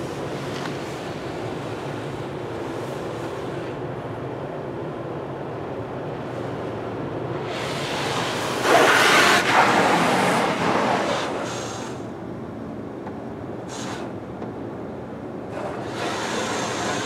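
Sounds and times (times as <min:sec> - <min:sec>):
car wash rumble: 0:00.0 - 0:17.0
water jets spraying car: 0:07.4 - 0:12.2, 0:13.6 - 0:14.3, 0:15.4 - 0:17.0.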